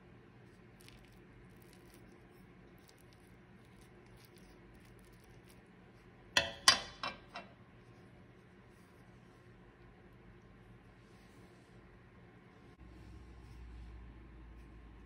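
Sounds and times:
metal spoon clinking on frying pan: 6.4s - 7.5s.

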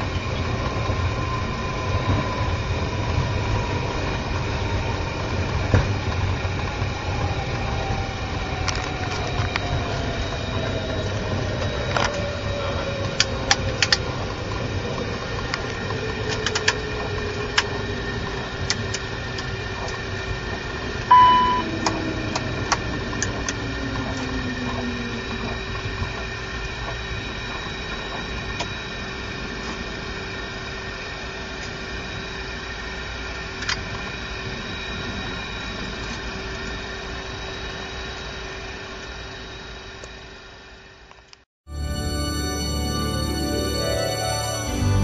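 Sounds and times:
jet engine whine winding down: 0.0s - 45.0s
steady cockpit hum: 0.0s - 45.0s
short sharp beep: 21.1s - 21.7s.

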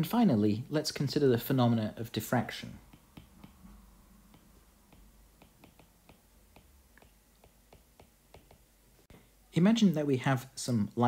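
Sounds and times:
stylus tapping on tablet screen: 2.8s - 8.8s.

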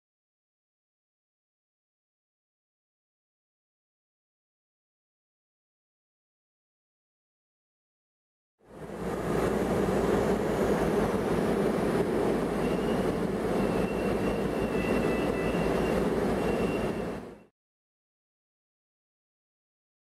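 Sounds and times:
tram rumble: 8.6s - 17.5s
thin high squeal: 12.6s - 17.2s.

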